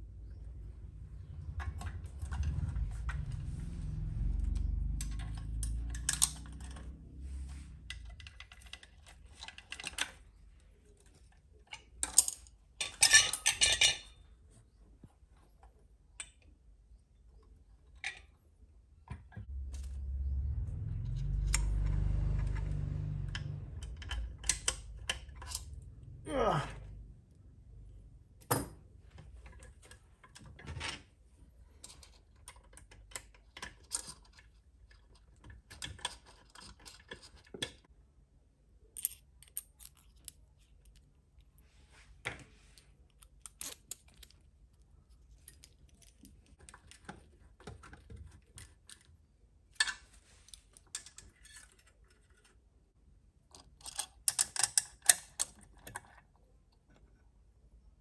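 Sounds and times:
low handling rumble: 0.0s - 8.1s, 19.4s - 28.4s
tools clicking and tapping: 4.9s - 7.0s.

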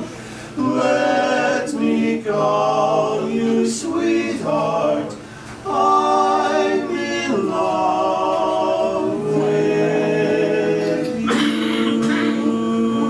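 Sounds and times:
male quartet singing a cappella: 0.0s - 13.0s.

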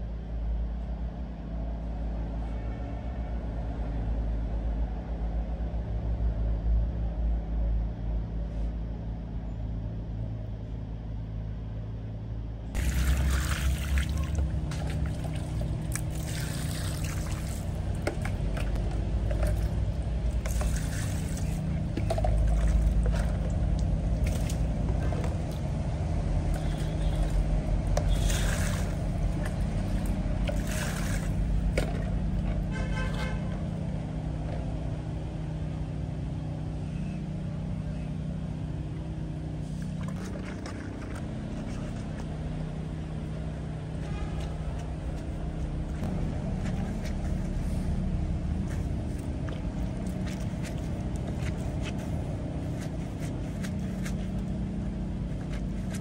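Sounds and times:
low motor hum: 4.0s - 56.0s
hand washing clothes in water: 12.8s - 33.8s, 39.7s - 56.0s.

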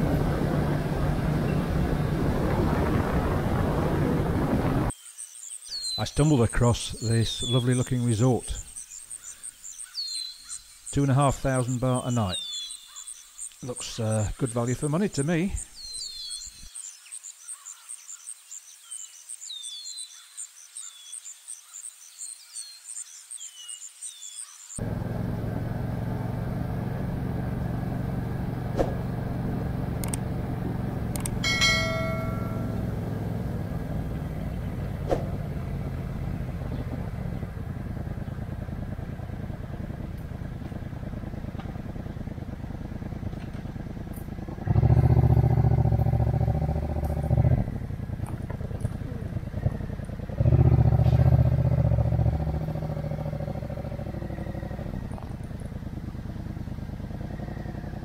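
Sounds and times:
motorcycle engine running: 0.0s - 4.0s, 24.8s - 58.0s
wind and road noise: 0.0s - 17.4s, 24.4s - 58.0s
bird chirps: 4.9s - 24.8s
insects trilling: 4.9s - 24.8s.

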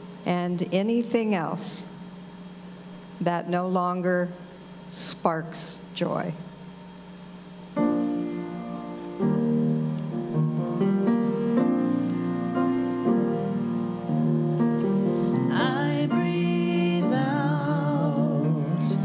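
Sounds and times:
keyboard playing slow chords: 7.7s - 19.0s
person singing: 15.4s - 19.0s.

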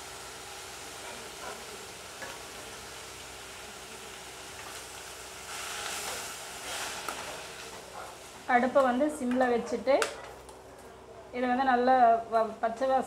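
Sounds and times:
leaves sizzling in oil: 0.0s - 9.4s.

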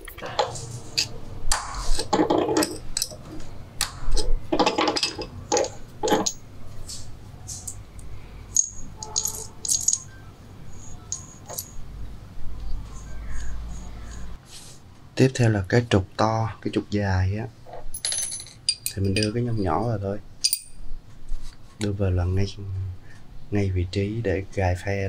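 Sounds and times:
metal gears clinking and rattling: 0.0s - 3.5s, 4.1s - 7.8s, 8.5s - 10.2s, 10.8s - 11.8s, 17.9s - 19.6s, 20.4s - 20.8s
metal clicks and knocks: 0.0s - 6.4s.

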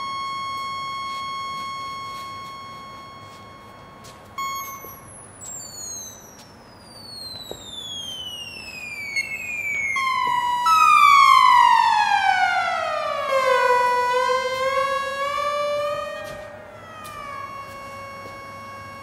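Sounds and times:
synthesizer tones gliding downward: 0.0s - 19.0s.

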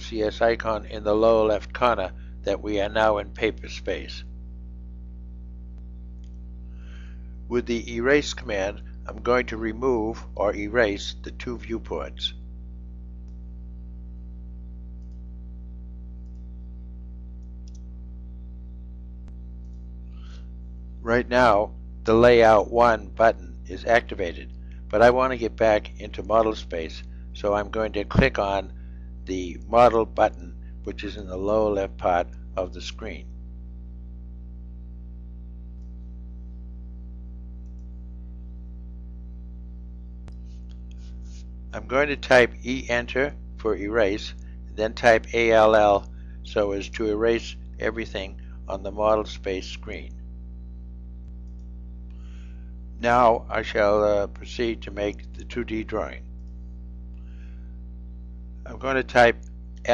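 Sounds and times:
steady low hum: 0.0s - 59.9s
computer mouse click: 37.6s - 37.9s.

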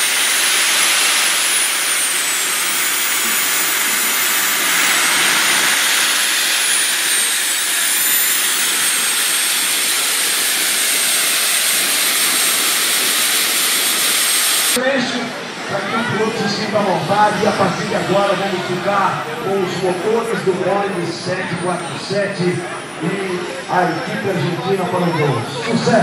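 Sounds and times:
jet turbine engine whine: 0.0s - 26.0s.

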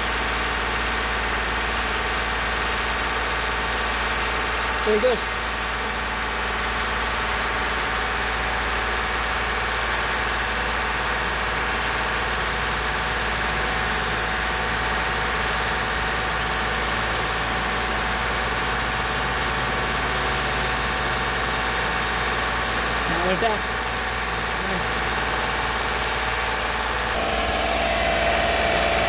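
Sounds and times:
car engine running steadily: 11.6s - 29.0s.

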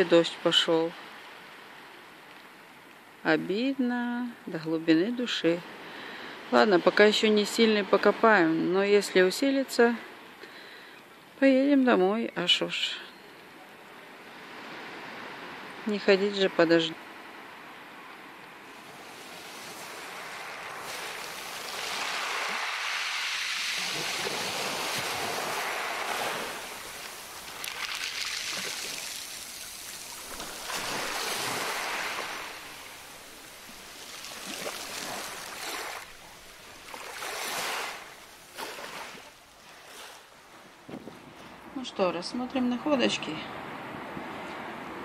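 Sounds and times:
ocean surf breaking: 17.3s - 40.3s.

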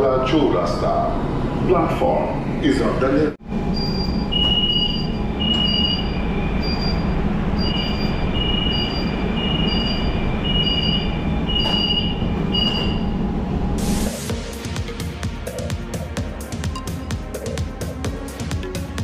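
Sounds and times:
stopped train hum: 3.4s - 18.6s
two-tone door warning beeps: 3.7s - 13.2s.

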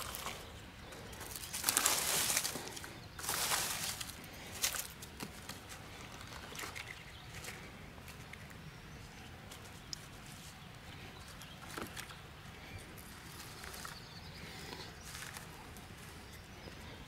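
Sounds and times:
rustling pine needles: 0.0s - 17.0s.

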